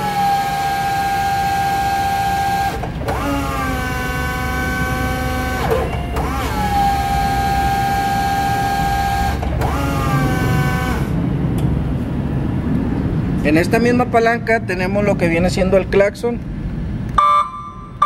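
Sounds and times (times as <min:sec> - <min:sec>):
forklift hydraulic pump whining: 0:00.0 - 0:12.2.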